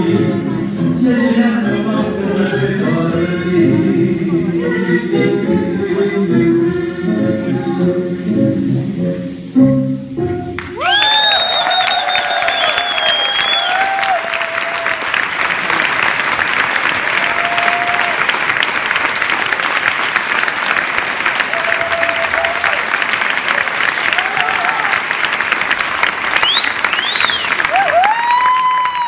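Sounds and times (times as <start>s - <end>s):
audience applauding: 10.6s - 29.0s
calls from the crowd: 10.8s - 16.2s, 16.9s - 18.6s, 21.2s - 25.4s, 26.4s - 29.0s.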